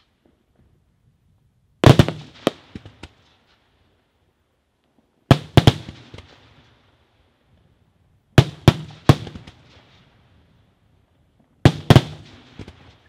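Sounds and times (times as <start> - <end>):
fireworks bursting with bangs: 1.8 - 3.8, 5.2 - 6.9, 8.3 - 10.5, 11.6 - 13.0.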